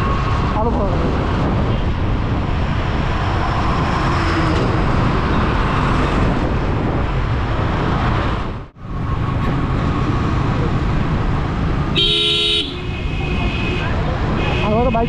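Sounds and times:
wind rushing over microphone: 0.0s - 12.0s
road noise: 0.0s - 15.0s.

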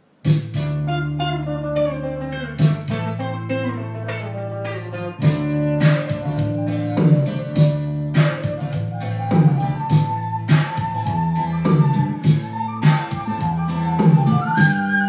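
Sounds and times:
plucked guitar notes: 0.5s - 15.0s.

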